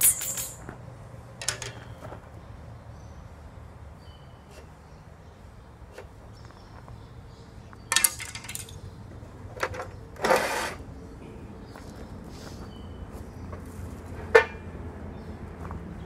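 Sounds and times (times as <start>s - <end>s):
steel tubing clanking: 0.0s - 0.7s, 1.4s - 2.0s, 7.9s - 8.8s.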